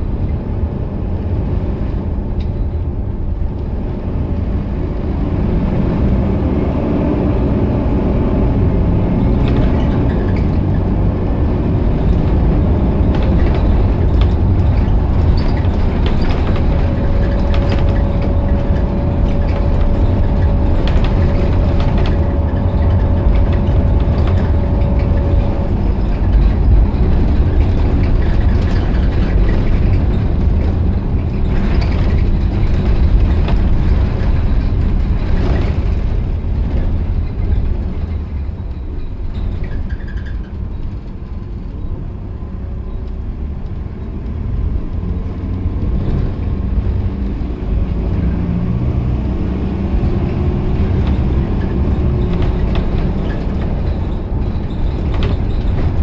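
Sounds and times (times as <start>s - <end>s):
bus diesel engine and road rumble: 0.0s - 56.0s
steady whine: 10.0s - 30.6s.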